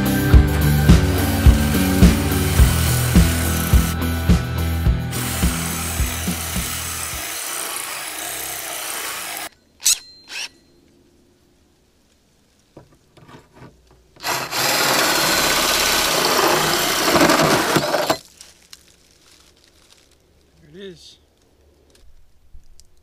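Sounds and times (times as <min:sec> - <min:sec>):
drill hole saw grinding metal: 0:00.5 - 0:04.1, 0:05.1 - 0:10.5, 0:14.2 - 0:18.2.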